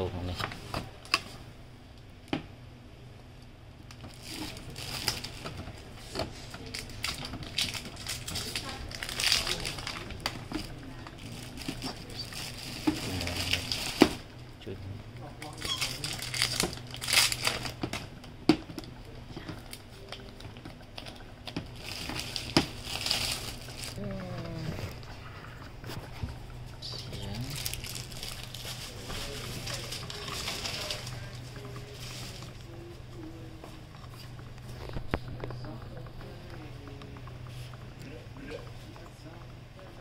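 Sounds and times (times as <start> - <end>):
crinkly plastic rustling: 3.9 - 14.3, 15.4 - 18.1, 18.8 - 35.7.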